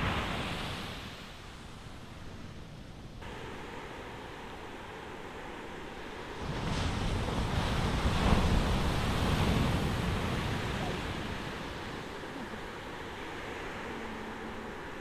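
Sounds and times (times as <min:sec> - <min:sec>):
wave washing in: 0:00.0 - 0:15.0
wind rumbling on microphone: 0:00.0 - 0:15.0.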